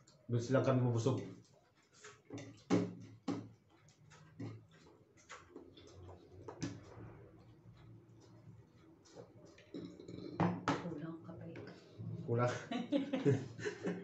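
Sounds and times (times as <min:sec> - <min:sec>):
chewing: 0:01.1 - 0:10.4.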